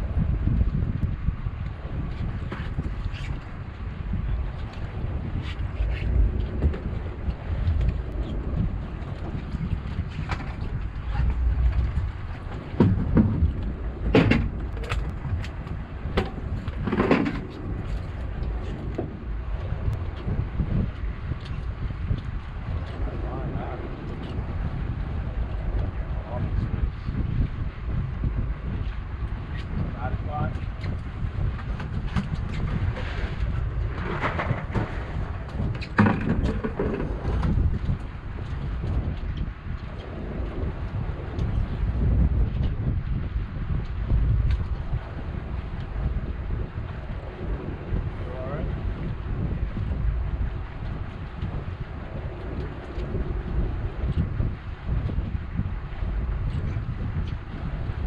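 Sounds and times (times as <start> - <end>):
wind rumble on microphone: 0.0 - 58.0
sharp knocks and clatters: 12.7 - 15.5, 35.6 - 37.6.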